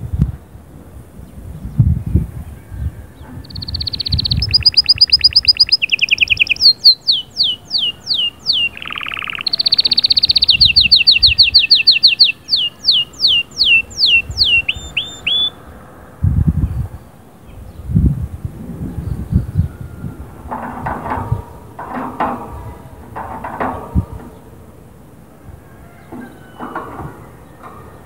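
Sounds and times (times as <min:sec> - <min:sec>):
canary singing trills: 0:02.6 - 0:15.6.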